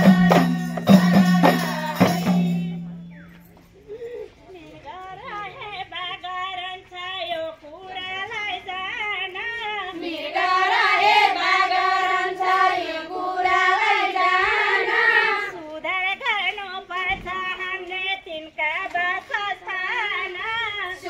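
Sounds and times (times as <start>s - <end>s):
group singing in unison: 0.0s - 2.9s, 9.5s - 16.2s, 20.2s - 21.0s.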